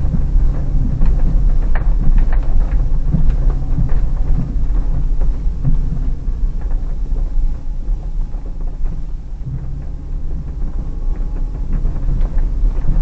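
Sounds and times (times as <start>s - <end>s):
car engine droning: 0.0s - 13.0s
suspension and body rattling: 0.0s - 13.0s.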